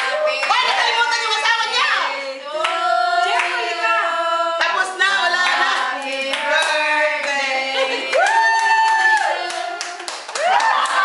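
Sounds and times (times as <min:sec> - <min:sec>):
women cheering: 0:08.0 - 0:11.0
hand clapping: 0:08.2 - 0:11.0.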